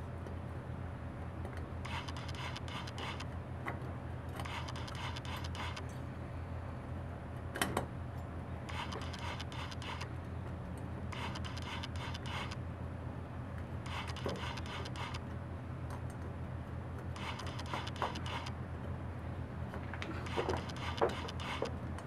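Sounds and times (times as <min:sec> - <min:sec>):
low hum: 0:00.0 - 0:03.6, 0:04.2 - 0:22.0
sharp click: 0:01.9 - 0:03.3, 0:04.4 - 0:05.9, 0:08.7 - 0:10.1, 0:11.2 - 0:12.6, 0:13.9 - 0:15.2, 0:17.2 - 0:18.5, 0:20.2 - 0:21.7
piston rings scraping metal: 0:11.2 - 0:12.6, 0:13.9 - 0:15.2.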